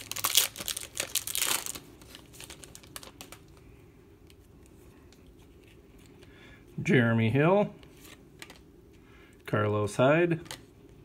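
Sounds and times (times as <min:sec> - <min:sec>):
foil wrapper crinkling: 0:00.0 - 0:03.6.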